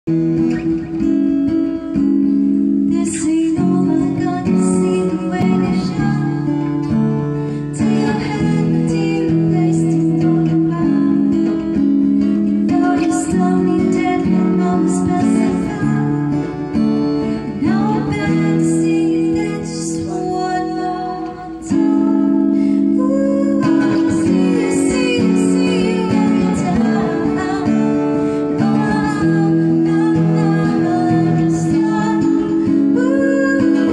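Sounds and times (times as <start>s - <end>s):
acoustic guitar strumming: 0.1s - 33.9s
woman singing: 0.3s - 33.9s.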